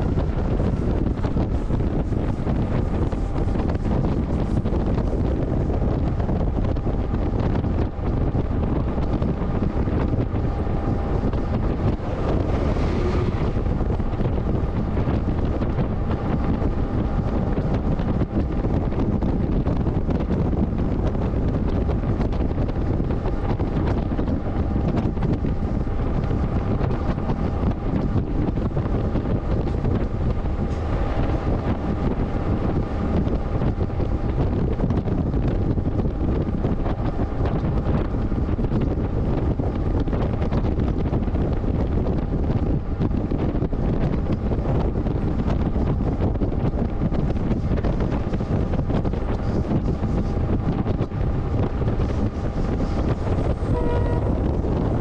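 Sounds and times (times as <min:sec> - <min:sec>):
train wagons rumbling on rails: 0:00.0 - 0:55.0
wind buffeting microphone: 0:00.0 - 0:55.0.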